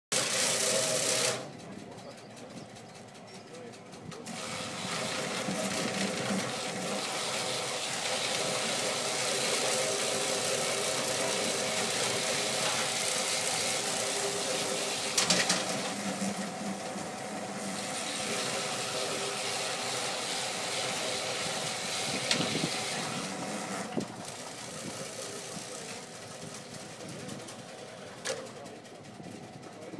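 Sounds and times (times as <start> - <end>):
motor hum: 0.1 - 29.9
drum stripping bark rushing hiss: 4.3 - 23.5.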